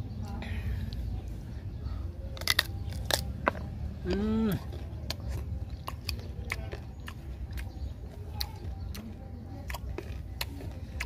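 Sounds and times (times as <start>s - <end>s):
man chewing with mouth clicks: 2.3s - 11.0s.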